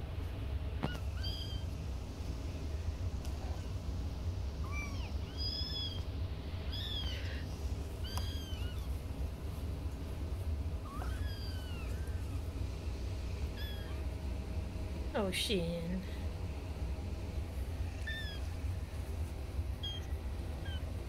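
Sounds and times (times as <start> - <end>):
steady low hum: 0.0 - 21.0
kittens mewing: 0.8 - 1.8, 4.6 - 9.2, 10.7 - 12.6, 13.4 - 14.2, 17.8 - 18.7, 19.8 - 21.0.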